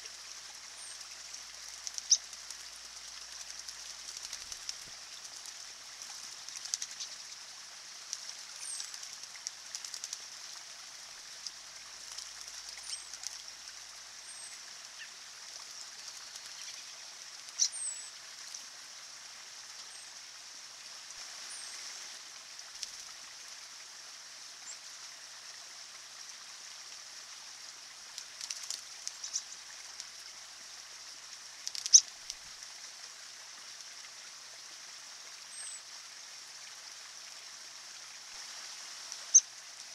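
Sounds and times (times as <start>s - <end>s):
wing flutters: 0.0s - 10.4s, 12.0s - 13.6s, 15.6s - 17.7s, 28.1s - 30.3s, 31.6s - 32.5s
stream trickling over rocks: 0.0s - 39.9s
birds splashing in water: 0.1s - 13.9s, 14.6s - 17.7s, 28.0s - 30.3s, 31.6s - 32.5s.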